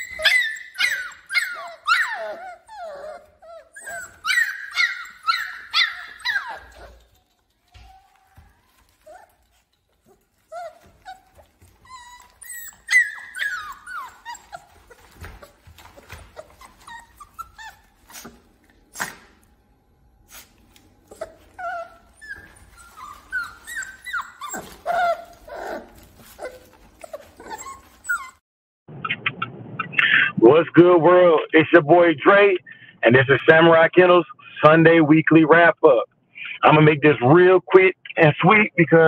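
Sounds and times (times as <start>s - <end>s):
puppies whimpering and yipping: 0.0s - 19.3s, 20.3s - 28.4s.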